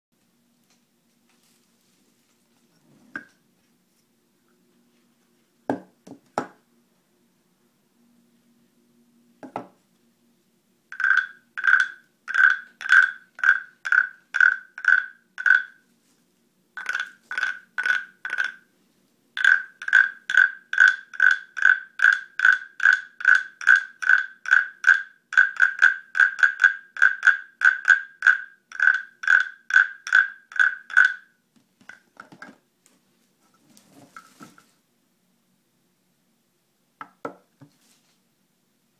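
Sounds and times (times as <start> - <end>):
stick knocking on wood: 5.7 - 6.6, 9.4 - 9.8, 37.0 - 37.7.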